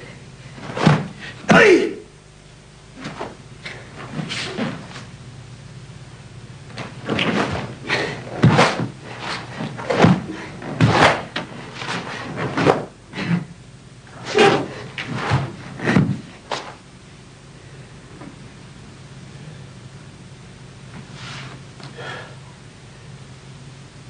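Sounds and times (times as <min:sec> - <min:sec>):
feet stepping on wooden floor: 0:06.7 - 0:13.4.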